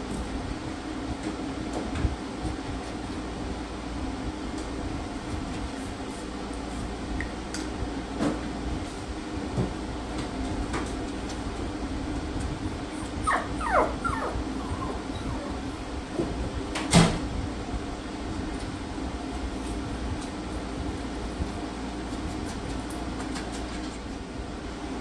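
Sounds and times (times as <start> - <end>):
steady hum: 0.0 - 25.0
small dog whining: 12.9 - 15.9.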